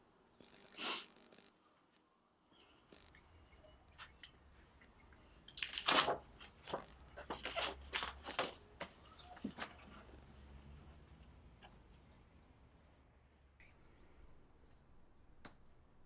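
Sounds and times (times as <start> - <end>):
low room hum: 13.2 - 16.0.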